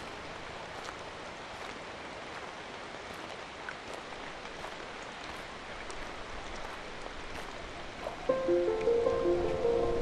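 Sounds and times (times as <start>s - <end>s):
light rain hiss: 0.0s - 10.0s
footsteps on rocky dirt trail: 0.6s - 8.3s.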